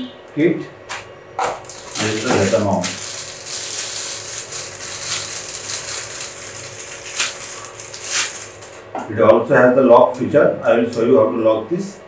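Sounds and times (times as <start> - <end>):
sharp plastic crackles: 0.9 - 8.9
plastic bag crinkling: 1.4 - 8.9.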